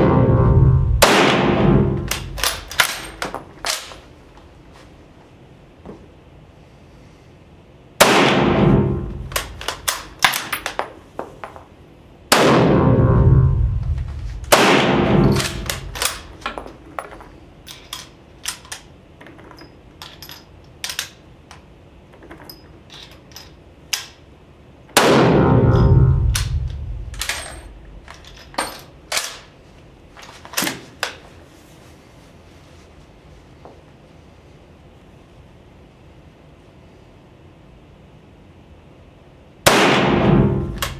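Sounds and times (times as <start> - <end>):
rifle shots echoing: 0.9 - 3.2, 8.0 - 9.9, 12.3 - 13.1, 14.4 - 16.4, 25.0 - 25.8, 39.7 - 40.9.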